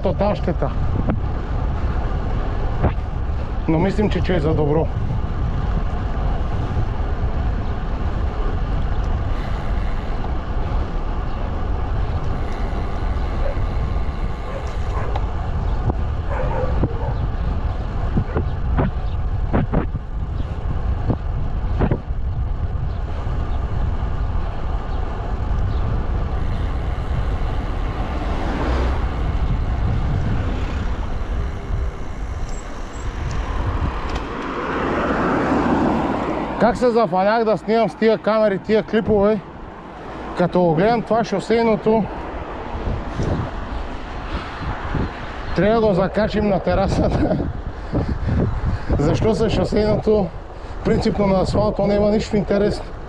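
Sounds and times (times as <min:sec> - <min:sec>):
wind rushing over microphone: 0:00.0 - 0:53.0.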